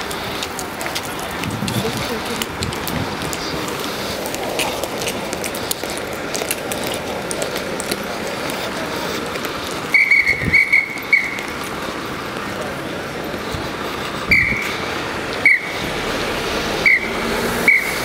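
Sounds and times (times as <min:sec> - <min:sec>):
street noise: 0:00.0 - 0:18.0
whistle blasts: 0:09.9 - 0:11.4, 0:14.3 - 0:14.7, 0:15.4 - 0:15.8, 0:16.8 - 0:18.0.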